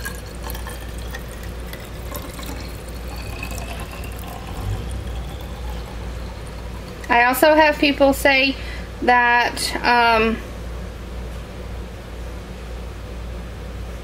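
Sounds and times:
thin stream of water pouring: 0.0 - 7.4.

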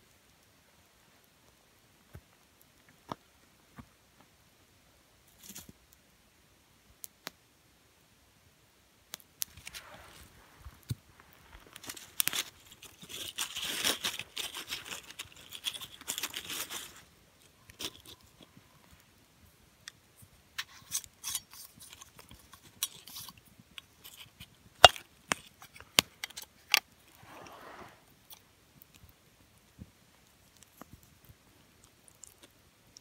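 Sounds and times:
cloth and crackers rustling: 9.5 - 19.1.

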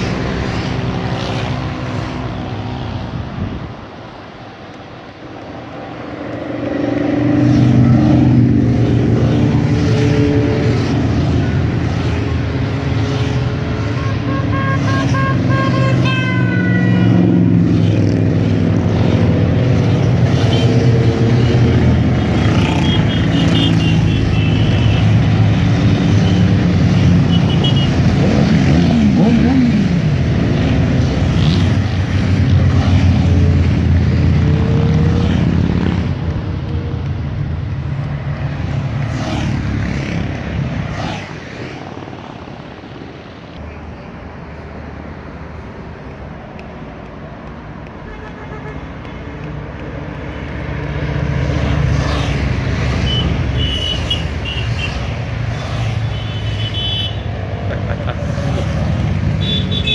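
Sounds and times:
motorcycles passing and revving: 0.0 - 59.9.

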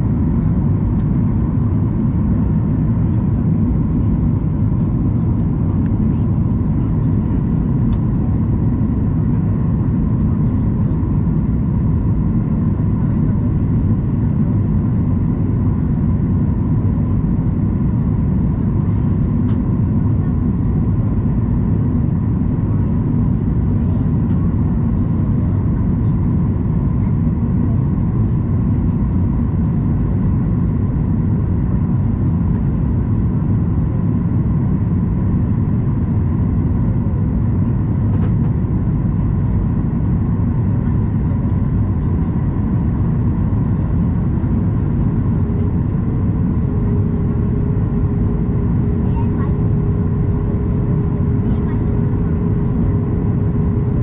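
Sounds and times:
airplane cabin rumble: 0.0 - 54.0
faint steady whine: 28.2 - 54.0.

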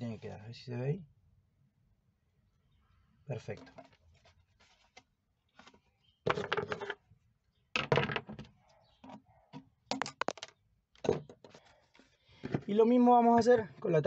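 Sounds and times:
plastic bottle crackling: 9.9 - 10.5.

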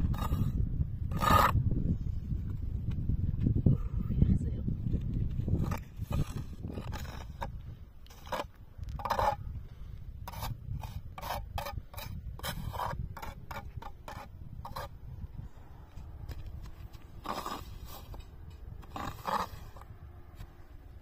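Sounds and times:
hand tool scraping snow and grit: 0.0 - 1.6, 5.5 - 9.4, 10.2 - 15.0, 15.9 - 20.6.

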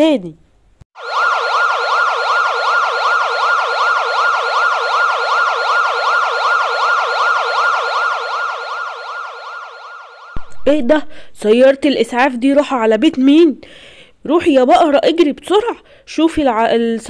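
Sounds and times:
ambulance siren yelping: 1.0 - 11.4.

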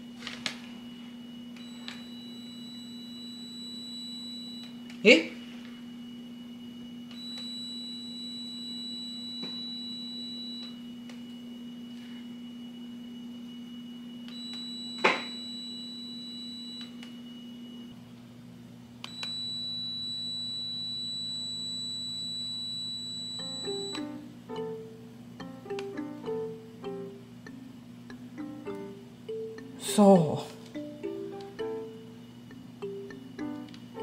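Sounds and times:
high-pitched warning beep: 0.9 - 10.8, 14.3 - 17.9, 19.1 - 24.2.

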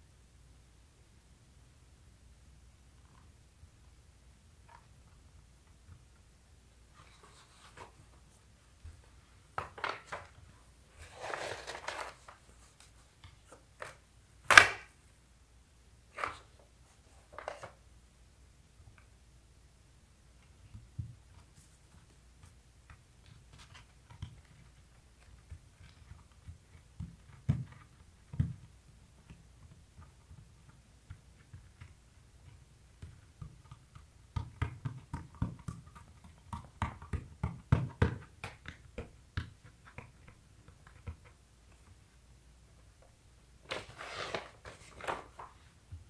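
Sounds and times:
hands patting skateboard: 11.4 - 14.9
hands rubbing grip tape: 43.7 - 45.6.

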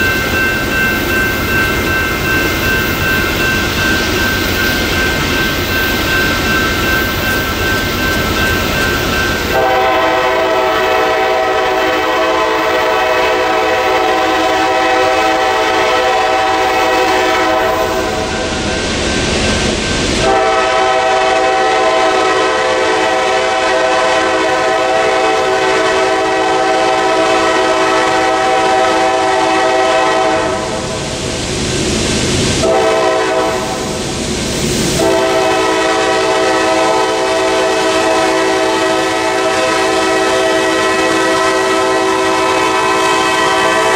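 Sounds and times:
train rushing rumble: 0.0 - 43.9
locomotive air horn blasts: 9.5 - 18.6, 20.2 - 30.8, 32.6 - 34.0, 35.0 - 43.9.

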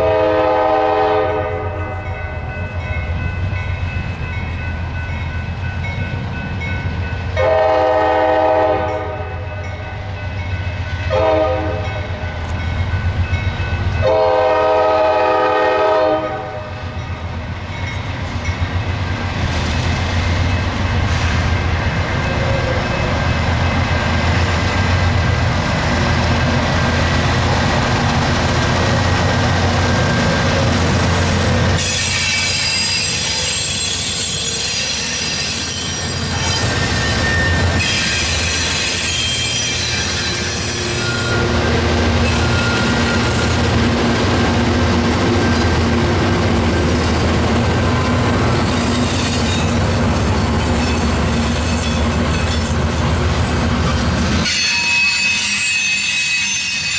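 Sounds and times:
diesel locomotive engines: 0.0 - 56.9
train wheel squeal: 30.0 - 43.7, 47.8 - 56.9.

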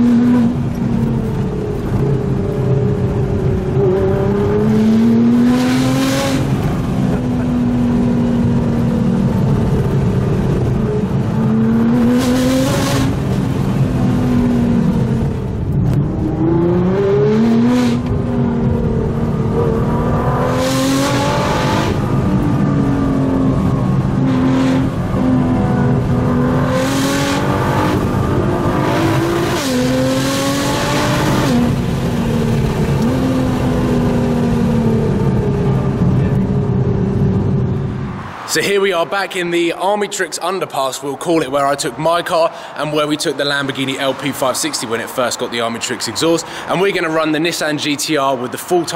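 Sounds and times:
car engine accelerating: 0.0 - 38.6.

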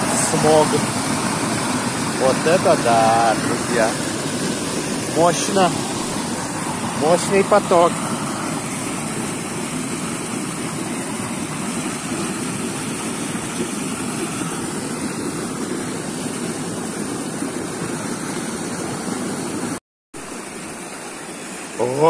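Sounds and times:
water gushing from pipe: 0.0 - 22.0.

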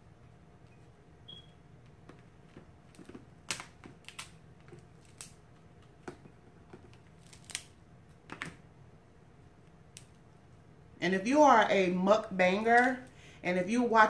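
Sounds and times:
crab shell cracking: 2.9 - 6.0, 6.7 - 7.8.

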